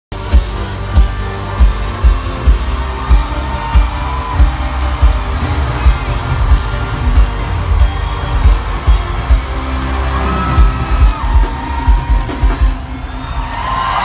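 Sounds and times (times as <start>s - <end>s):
loud live pop music: 0.1s - 14.0s.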